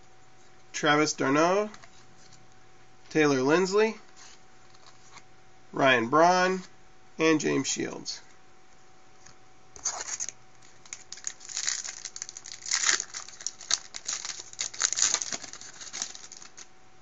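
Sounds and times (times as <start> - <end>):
foil wrapper tearing and crumpling: 9.8 - 16.7.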